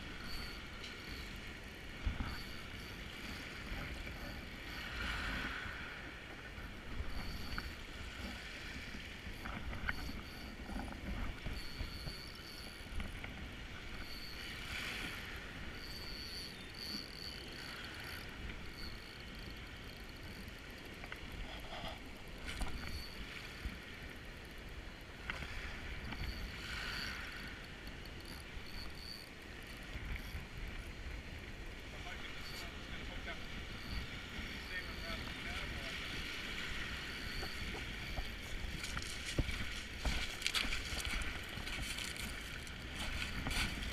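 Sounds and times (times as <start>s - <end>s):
faint high whine: 0.0s - 43.9s
river water and surf: 0.0s - 43.9s
wind on microphone: 32.1s - 43.9s.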